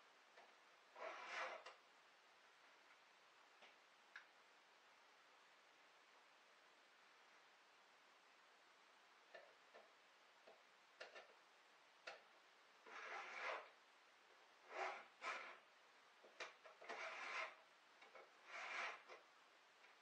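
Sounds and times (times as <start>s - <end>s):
file scraping chainsaw chain: 1.0s - 1.7s, 12.9s - 13.7s, 14.7s - 15.6s, 16.8s - 17.6s, 18.4s - 19.2s.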